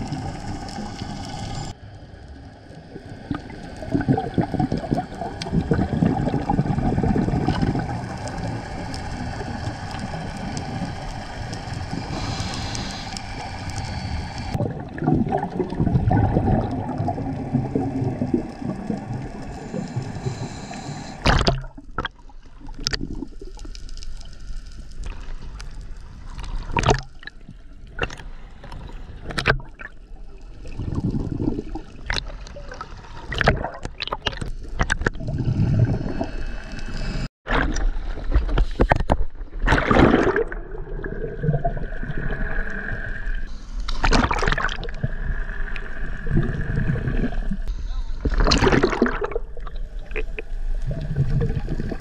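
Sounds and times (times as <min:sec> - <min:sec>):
steady low rumble: 0:00.0 - 0:21.9
underwater bubbling and gurgling: 0:00.0 - 0:52.0.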